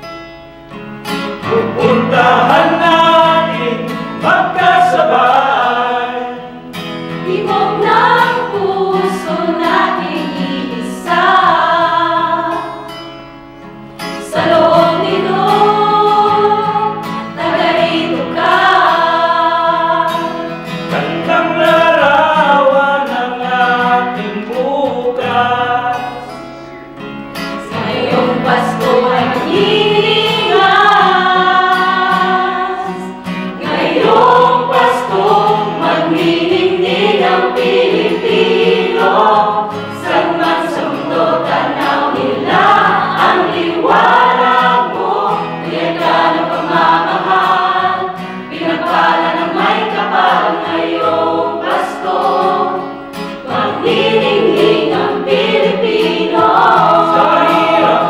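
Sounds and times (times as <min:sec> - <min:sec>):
acoustic guitar: 0:00.0 - 0:58.0
choir singing a hymn: 0:01.1 - 0:26.7, 0:27.4 - 0:58.0.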